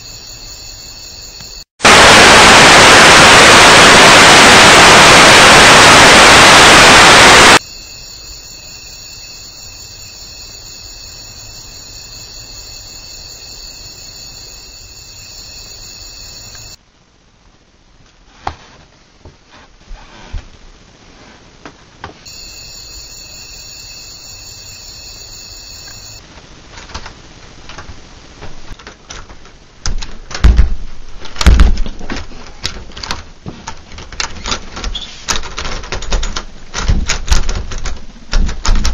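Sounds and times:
faint steady hiss: 0.0 - 31.4
television static hiss: 1.8 - 7.8, 20.6 - 31.4.

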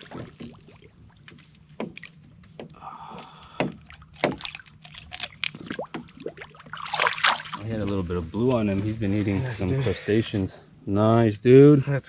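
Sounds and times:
water splashing at boat side: 0.0 - 8.0.

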